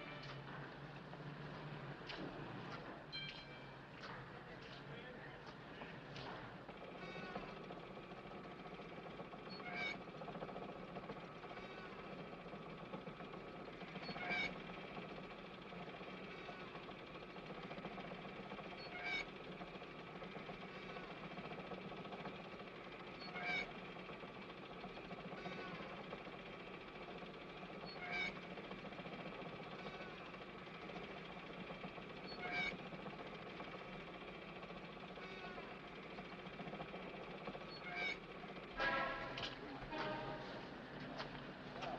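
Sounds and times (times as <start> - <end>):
arm squeaking: 6.9 - 7.8, 8.4 - 19.4, 20.2 - 26.2, 27.0 - 40.8.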